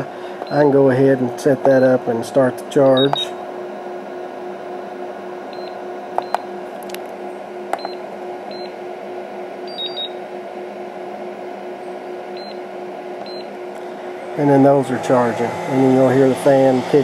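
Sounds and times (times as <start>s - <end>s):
cooling fan hum: 0.0s - 17.0s
battery charger beeping: 5.6s - 6.4s, 7.8s - 8.8s, 9.7s - 10.2s, 13.2s - 13.5s.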